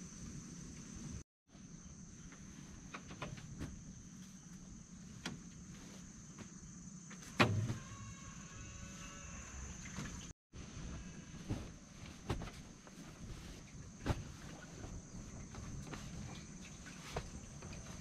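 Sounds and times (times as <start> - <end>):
cloth net rustling: 10.6 - 18.0.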